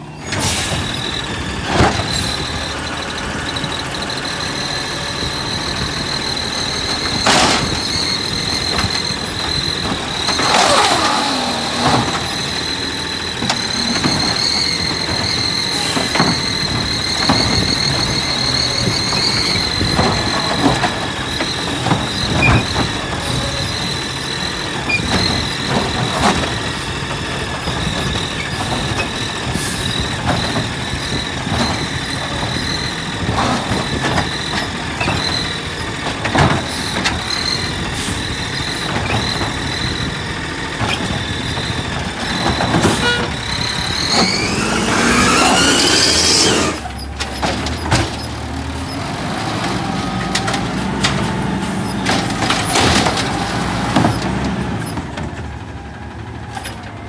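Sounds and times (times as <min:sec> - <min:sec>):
refuse truck engine whine: 0:00.0 - 0:57.0.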